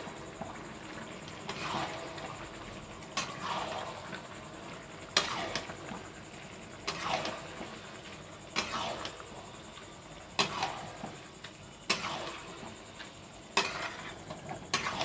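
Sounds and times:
metal spatula scraping a wok: 11.9 - 12.5, 13.6 - 15.0.

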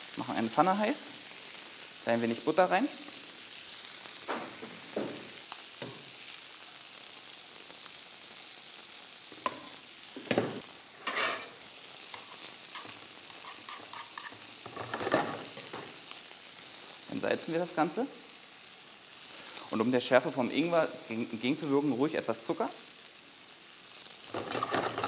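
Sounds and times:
butter sizzling in frying pan: 0.0 - 25.0
spatula scraping pan: 9.4 - 15.9, 24.3 - 25.0.

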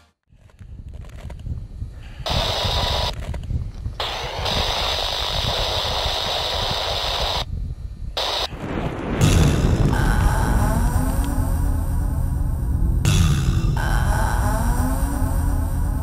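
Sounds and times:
wind buffeting microphone: 0.4 - 11.0.

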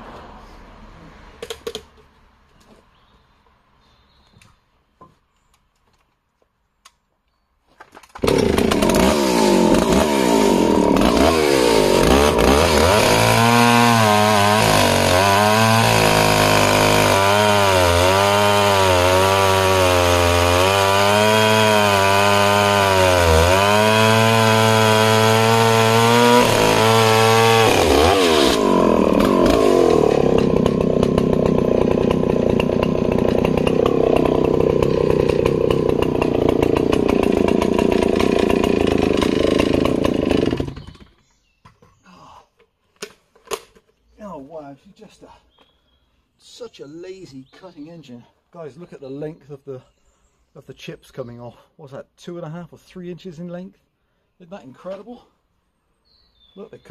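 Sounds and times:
chainsaw cutting log: 8.0 - 41.3.

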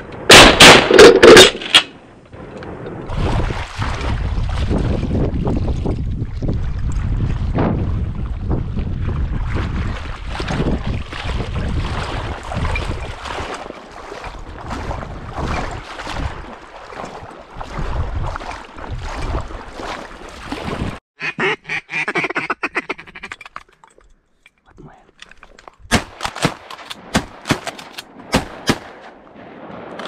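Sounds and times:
wind buffeting microphone: 2.4 - 19.9
ducks quacking: 21.2 - 23.3.

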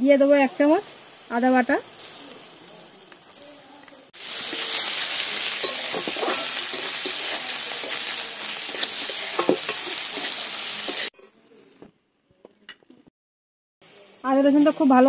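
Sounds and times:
onions sizzling in hot oil: 0.0 - 11.2, 13.8 - 15.0
spatula scraping a metal pan: 4.5 - 11.4.

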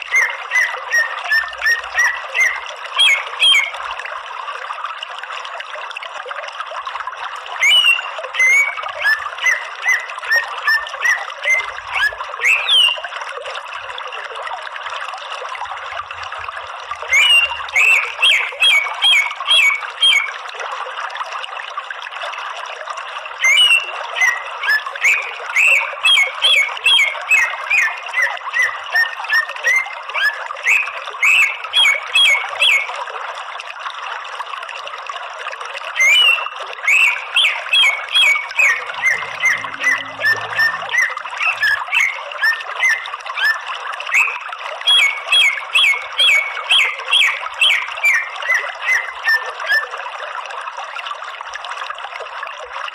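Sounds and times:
bird chirping and whistling: 0.0 - 3.8, 7.6 - 13.1, 17.1 - 20.4, 23.4 - 33.0, 36.0 - 49.9
running water: 0.0 - 52.9.

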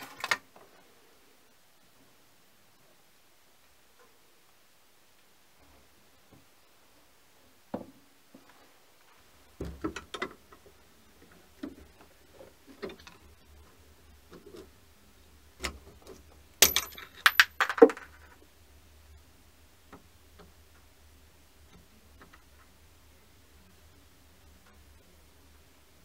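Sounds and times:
metal parts clicking and knocking: 16.6 - 18.4.

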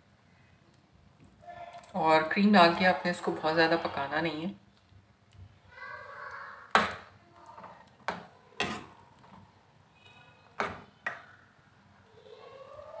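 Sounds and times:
ladle stirring thick curry: 6.6 - 10.8.

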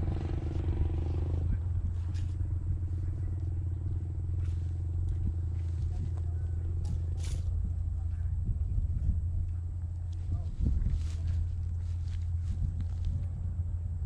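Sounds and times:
small engine running: 0.0 - 7.8.

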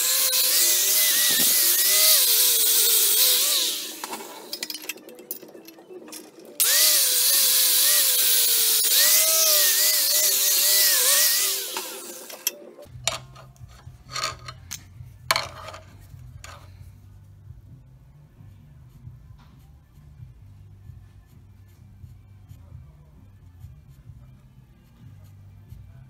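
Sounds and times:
power tool whining on metal: 0.0 - 4.6, 6.6 - 12.6.

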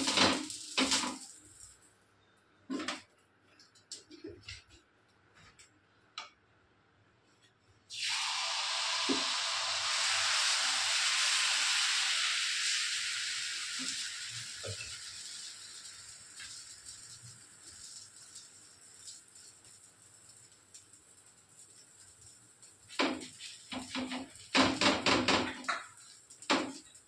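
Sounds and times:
batter sizzling on hot pan: 0.0 - 1.8, 7.9 - 27.0.

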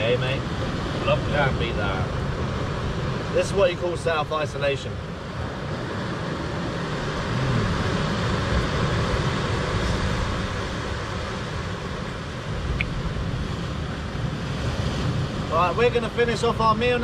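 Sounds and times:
sea surf breaking on rocks: 0.0 - 17.0
wind rumbling on microphone: 4.8 - 17.0.

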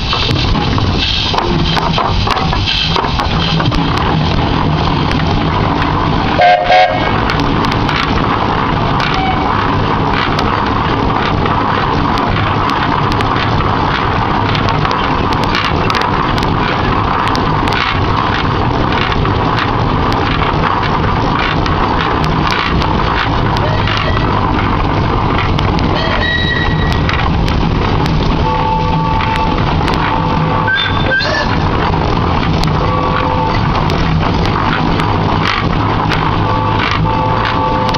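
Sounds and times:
steam engine running: 0.0 - 37.9
steam whistle toots: 6.4 - 7.1, 26.0 - 27.0, 30.6 - 31.5.

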